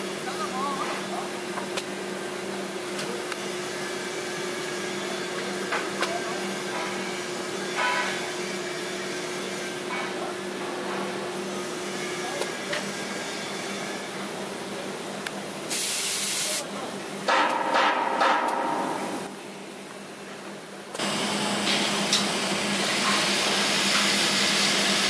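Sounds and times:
welding arc hissing: 15.7 - 16.7.

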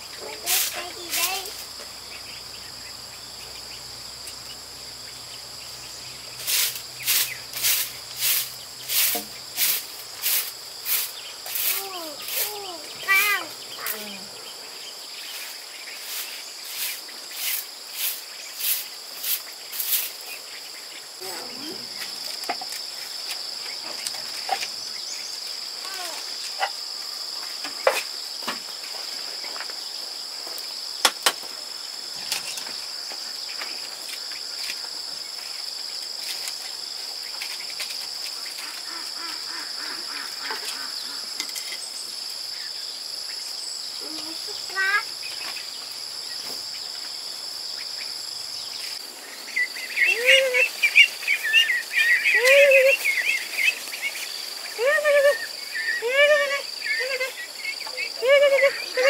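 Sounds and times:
insects droning: 0.0 - 59.0
ducklings peeping: 38.4 - 41.3, 48.7 - 59.0.

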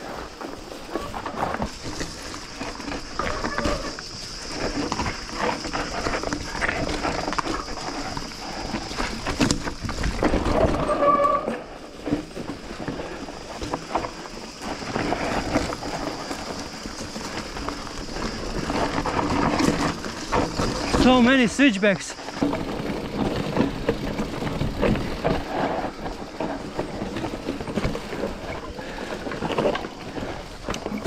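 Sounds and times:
bike frame and chain rattling: 0.0 - 31.0
tyres crunching over stones: 0.0 - 31.0.

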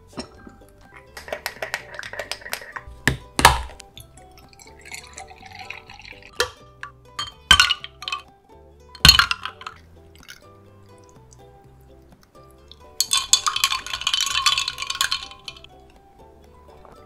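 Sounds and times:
soft background music: 0.0 - 17.0
stick clinking in ceramic pitcher: 0.2 - 2.9, 3.6 - 8.3, 9.0 - 10.4, 12.7 - 15.7
ice cubes clattering into glass: 1.2 - 2.8, 4.6 - 6.6, 7.2 - 8.2, 9.0 - 9.8, 13.0 - 15.7
milk pouring into glass mug: 4.0 - 8.2, 9.0 - 11.3, 12.7 - 15.8.

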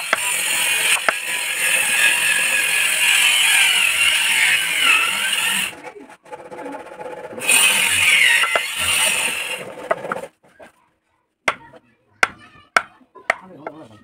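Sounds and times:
chisel being struck on wood: 0.9 - 1.2, 11.5 - 13.8.

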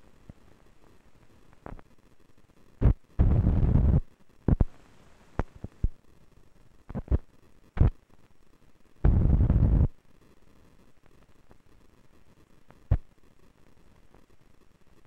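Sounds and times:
burst of loud low noise: 2.8 - 4.7, 9.0 - 9.9.

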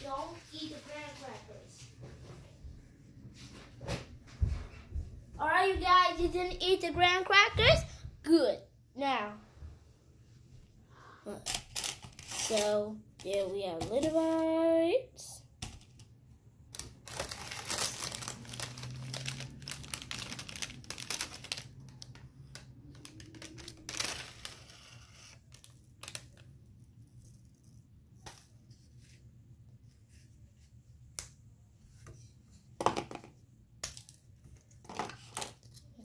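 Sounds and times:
plastic packaging crinkling: 16.7 - 27.8.

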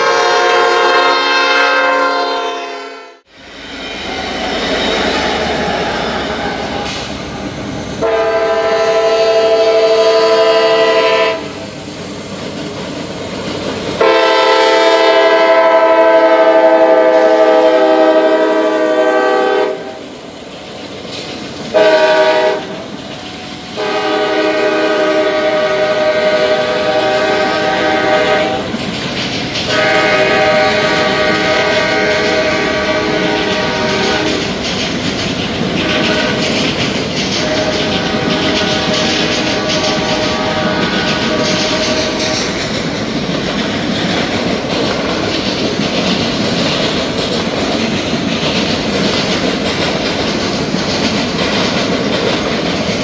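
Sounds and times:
locomotive air horn blasts: 0.0 - 4.5, 8.0 - 11.6, 14.0 - 20.0, 21.7 - 22.8, 23.8 - 28.7, 29.7 - 34.5, 35.8 - 36.5, 37.3 - 42.4
freight train rolling: 0.0 - 53.0.

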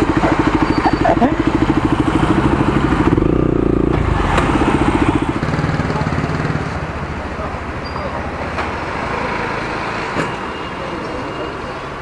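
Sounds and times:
motorcycle engine idling: 0.0 - 4.2.

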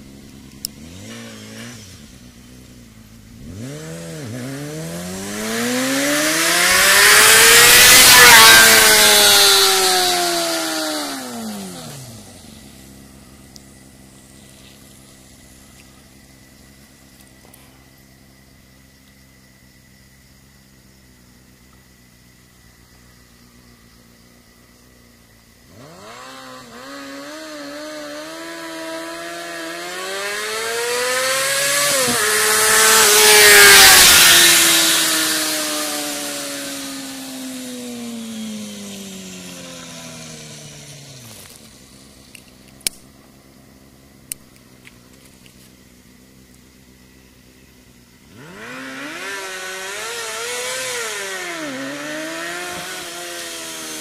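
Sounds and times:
motorcycle accelerating past: 0.0 - 18.8, 25.1 - 42.6, 43.2 - 54.0
sharp clicks: 42.3 - 43.1.

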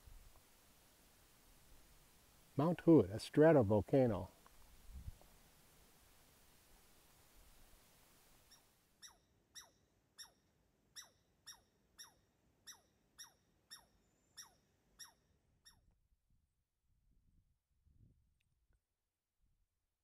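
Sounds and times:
small animal squeaky calls: 8.5 - 15.9.

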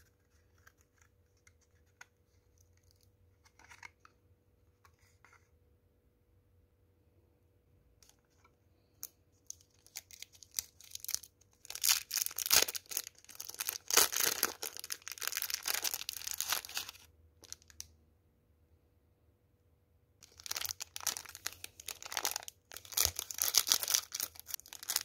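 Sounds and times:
plastic wrapper crinkling: 9.0 - 17.8, 20.2 - 25.0.

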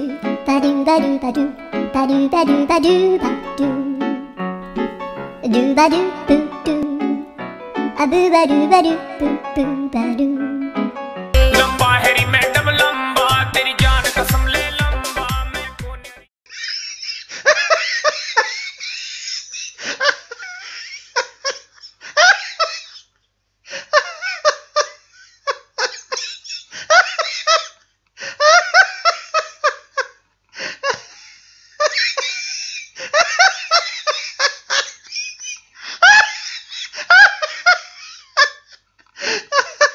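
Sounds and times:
hearty laughter: 16.5 - 23.1, 23.7 - 30.2, 30.8 - 39.9.

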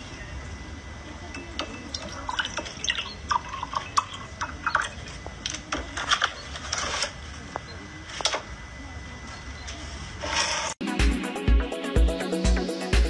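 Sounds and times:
liquid glugging into a mug: 1.9 - 5.2.

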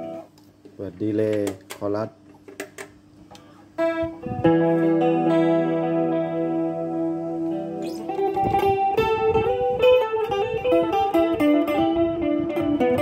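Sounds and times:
electric guitar with chorus and delay: 0.0 - 0.3, 3.8 - 13.0.

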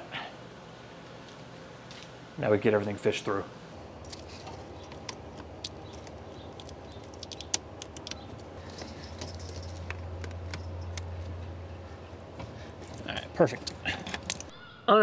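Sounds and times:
low steady hum: 0.0 - 15.0
plastic lines clicking against hoses: 4.8 - 11.4, 12.8 - 14.5.

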